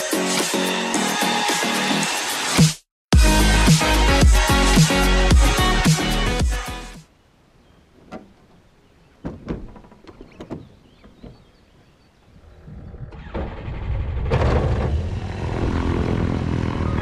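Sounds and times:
canopy clunking shut and latching: 8.0s - 8.6s, 9.2s - 11.6s
aircraft engine starting and running: 13.1s - 17.0s.

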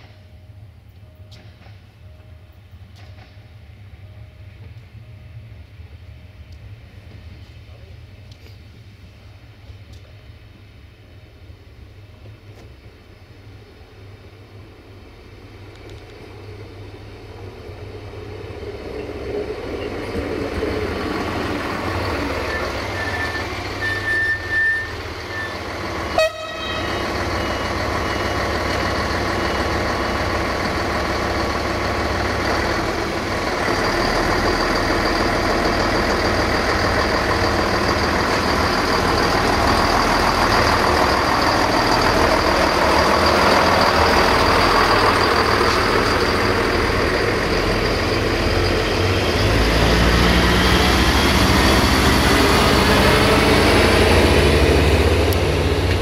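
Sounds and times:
diesel train engine: 0.0s - 56.0s
train horn toots: 22.5s - 27.1s.

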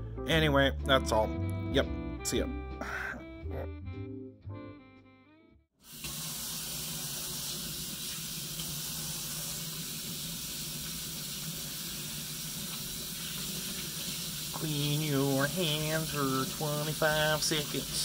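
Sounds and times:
faucet running water: 5.8s - 18.0s.

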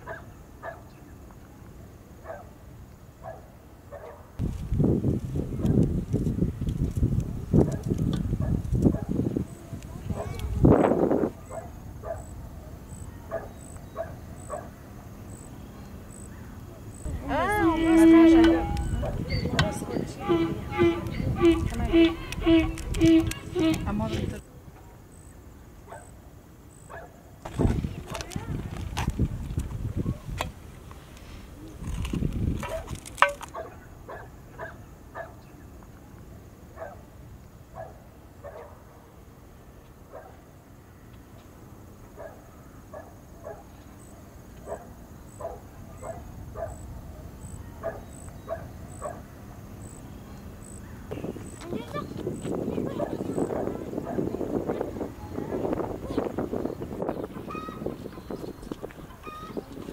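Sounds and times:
dog barking: 0.0s - 0.9s, 2.2s - 2.5s, 3.2s - 4.3s, 7.7s - 9.2s, 11.4s - 12.3s, 13.3s - 14.8s, 25.9s - 26.1s, 26.9s - 27.2s, 33.5s - 35.4s, 36.8s - 37.0s, 37.8s - 38.8s, 40.1s - 40.4s, 42.2s - 43.7s, 44.6s - 46.8s, 47.8s - 49.3s, 53.0s - 54.3s
short animal calls: 17.4s - 24.3s.

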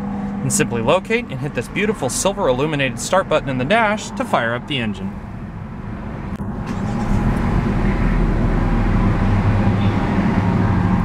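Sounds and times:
car engine starting and idling: 0.0s - 11.0s.

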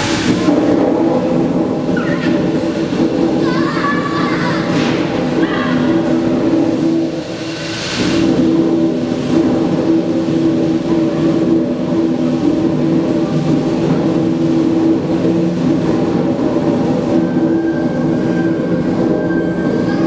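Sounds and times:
steam engine rumbling: 0.0s - 20.0s
steam hissing: 0.0s - 20.0s.

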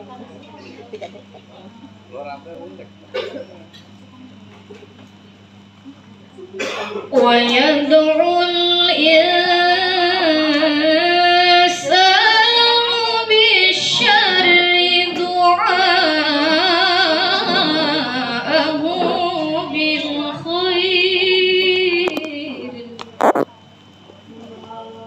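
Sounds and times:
woman singing unaccompanied: 7.1s - 22.9s.

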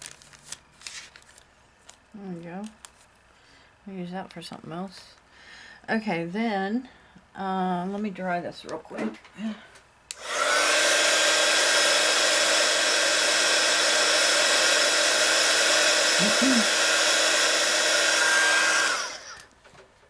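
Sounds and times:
heat gun motor whine: 10.1s - 19.5s
blowing air rush: 10.2s - 19.3s.

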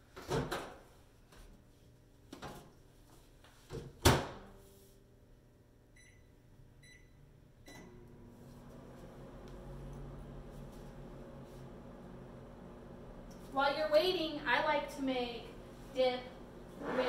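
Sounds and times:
microwave oven humming: 5.9s - 17.0s.

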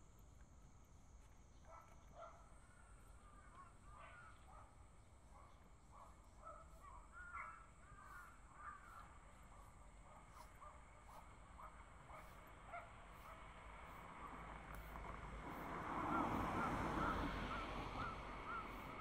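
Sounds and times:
crows cawing: 7.2s - 9.1s.

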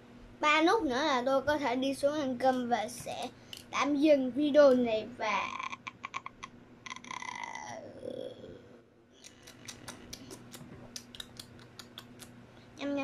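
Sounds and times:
faint low hum: 0.0s - 13.0s
child vocal sound: 5.4s - 8.6s.

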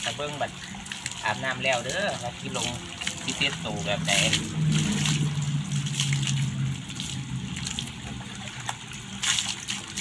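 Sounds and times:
water splashing onto concrete: 0.0s - 10.0s.

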